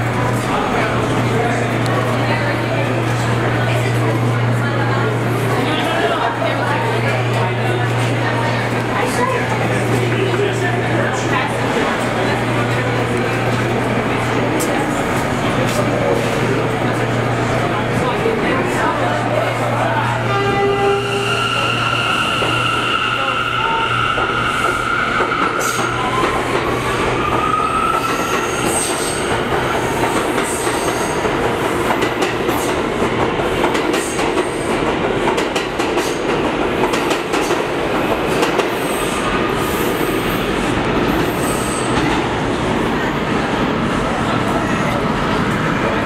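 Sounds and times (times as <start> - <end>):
high wheel squeals: 20.4 - 26.2.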